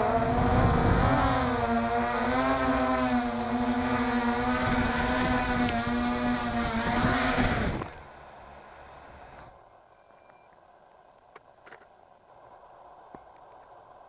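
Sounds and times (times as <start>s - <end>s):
quadcopter motors whining: 0.0s - 9.6s.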